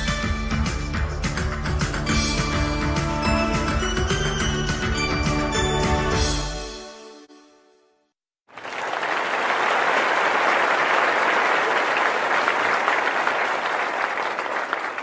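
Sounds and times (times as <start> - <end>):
closing credits music: 0.3 - 7.6
audience applause: 8.5 - 15.0.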